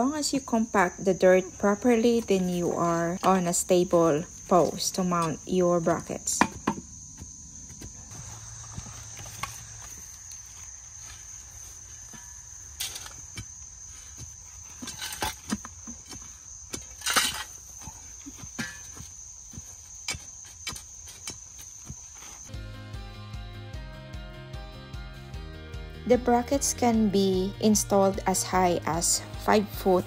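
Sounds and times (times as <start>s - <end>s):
crickets chirping: 0.0s - 30.0s
shovel scraping dirt: 1.6s - 22.5s.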